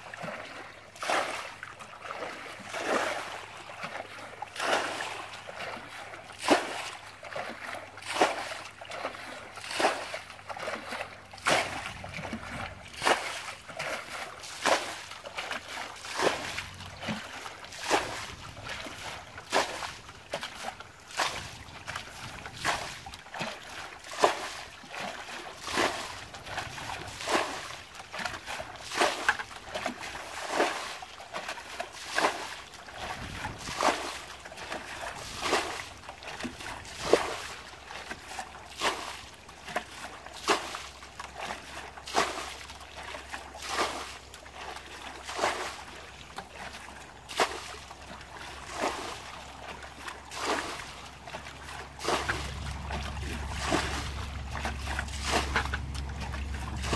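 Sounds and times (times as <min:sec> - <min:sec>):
bucket scooping and splashing water: 0:00.0 - 0:56.9.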